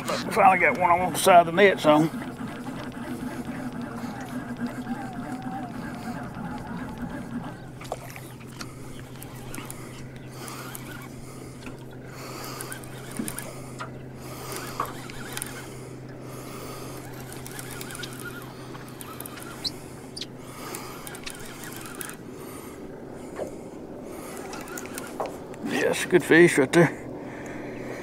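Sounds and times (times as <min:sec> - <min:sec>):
boat motor humming: 0:00.0 - 0:28.0
fishing reel clicks: 0:01.9 - 0:15.8, 0:16.5 - 0:22.2, 0:24.3 - 0:25.6
short high squeaks: 0:17.1 - 0:20.4.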